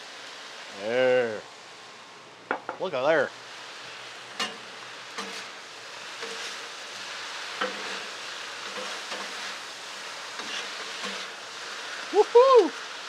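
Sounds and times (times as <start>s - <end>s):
noodles sizzling on griddle: 0.0s - 13.0s
metal spatulas scraping steel: 5.2s - 5.5s, 10.4s - 11.3s.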